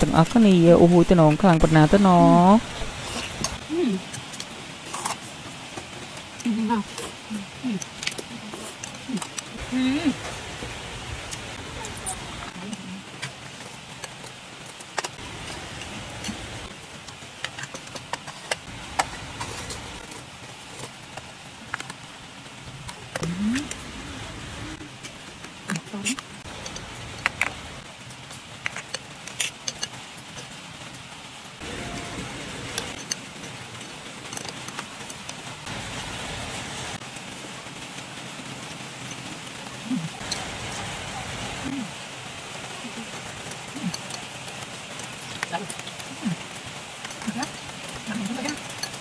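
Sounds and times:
cutlery clicking against bowl: 47.0s - 49.0s.

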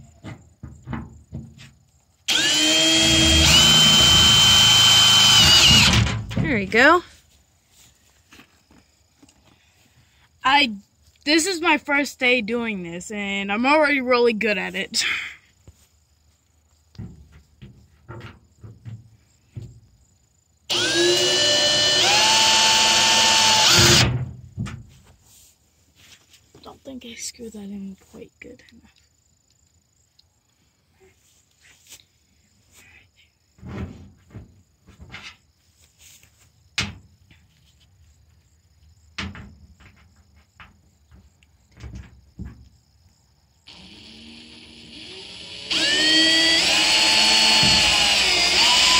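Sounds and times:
power drill whining: 2.3s - 6.1s, 20.7s - 24.1s, 43.7s - 48.9s.

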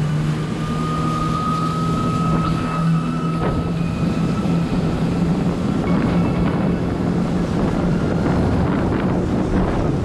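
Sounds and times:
jet ski engine running steadily: 0.0s - 10.0s
thin high whine: 0.6s - 7.2s.

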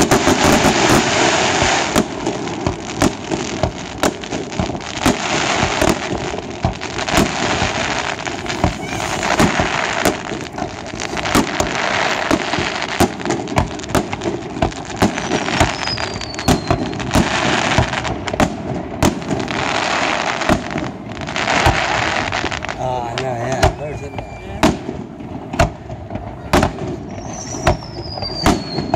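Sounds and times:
fireworks bangs: 0.0s - 28.9s
fireworks crackling: 0.0s - 28.9s
falling whistle: 15.3s - 17.0s, 23.6s - 24.6s, 27.1s - 28.9s.

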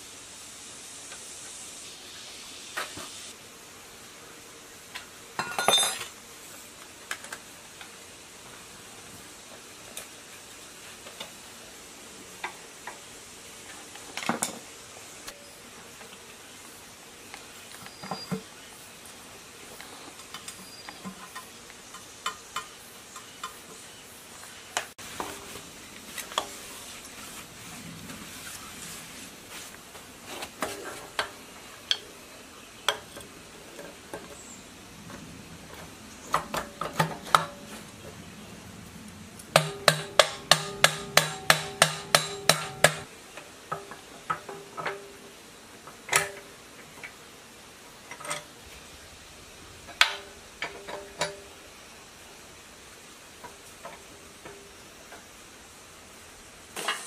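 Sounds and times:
metal tools clinking on engine block: 5.4s - 6.2s.

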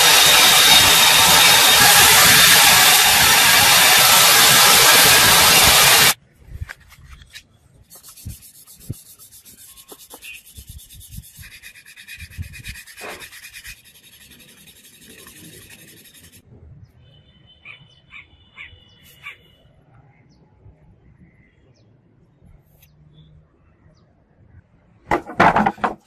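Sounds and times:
metal rubbed on sandpaper: 7.8s - 16.4s.

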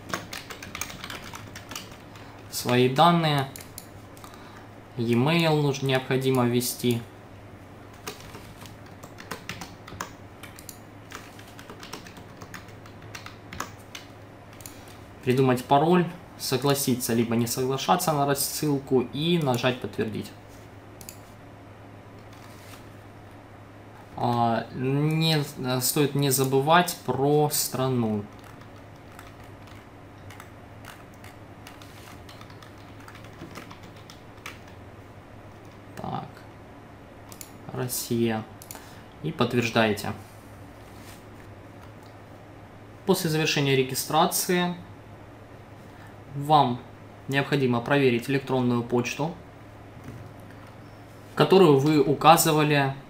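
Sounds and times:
computer keyboard typing: 0.0s - 4.4s, 7.9s - 15.0s, 28.2s - 34.8s
steady low hum: 0.0s - 53.0s.

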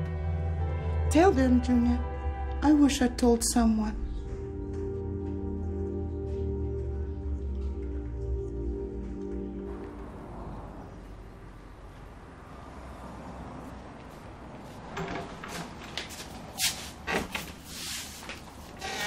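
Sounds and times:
door opening and shutting: 14.9s - 17.7s, 18.7s - 19.0s.

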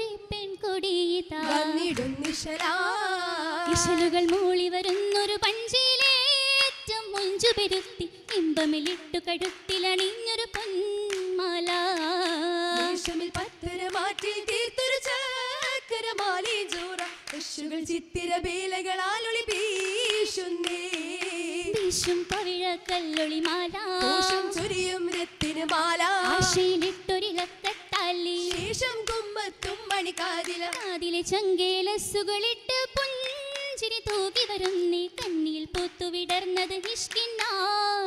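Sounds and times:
hand claps: 1.4s - 2.8s, 3.6s - 17.6s, 19.2s - 31.1s, 32.7s - 38.0s
person singing: 23.9s - 24.9s, 26.1s - 26.8s.

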